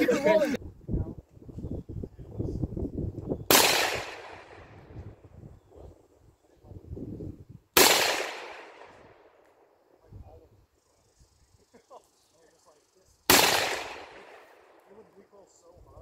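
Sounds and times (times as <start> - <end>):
rifle shots with echo: 3.5 - 4.8, 7.8 - 9.3, 13.3 - 14.8.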